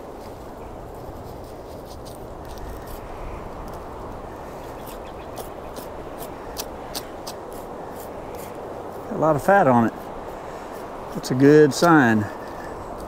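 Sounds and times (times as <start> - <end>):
steady rushing background noise: 0.0 - 13.0.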